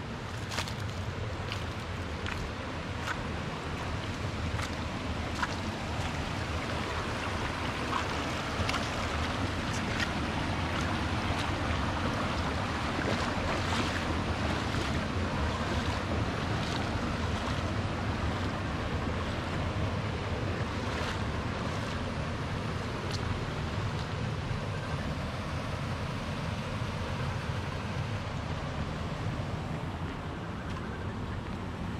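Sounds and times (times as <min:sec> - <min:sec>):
small water splashes: 0:00.0 - 0:24.4
stream running over rocks: 0:00.0 - 0:31.9.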